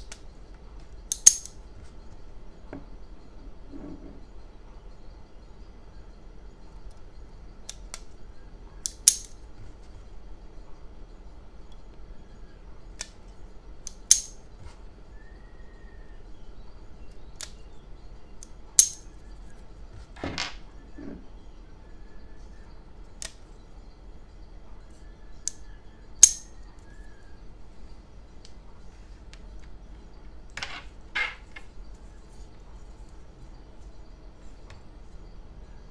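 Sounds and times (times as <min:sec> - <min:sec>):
metal clicks of rubber band pistol: 0:01.1 - 0:01.6, 0:08.8 - 0:09.4, 0:13.9 - 0:14.4, 0:18.8 - 0:19.0
soft rubbing scrape: 0:03.6 - 0:04.3.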